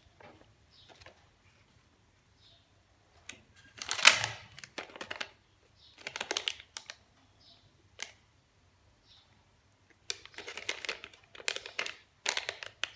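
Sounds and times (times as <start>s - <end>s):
plastic packets crinkling: 3.6s - 5.4s, 6.0s - 7.0s, 10.0s - 12.9s.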